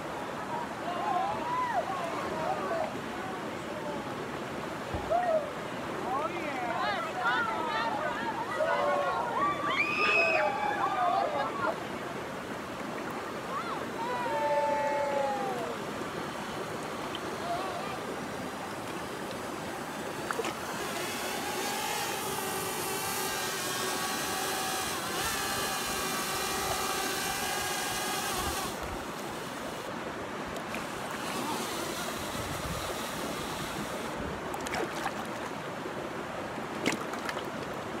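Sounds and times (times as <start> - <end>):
river rapids rushing: 5.5 - 38.0
drone propellers whining: 14.4 - 30.0, 30.6 - 34.2.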